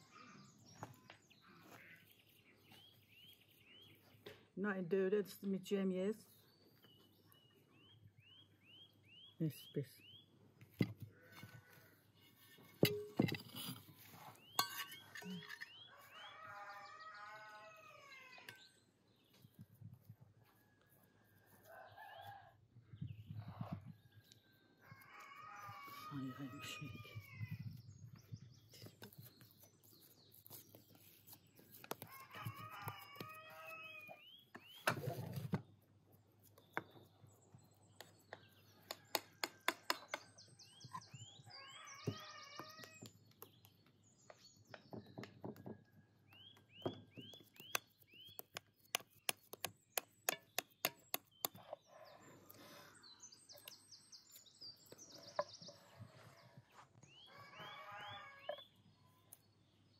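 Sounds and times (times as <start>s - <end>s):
small birds chirping: 0.0s - 20.8s, 21.4s - 59.9s
chickens calling: 54.9s - 58.8s.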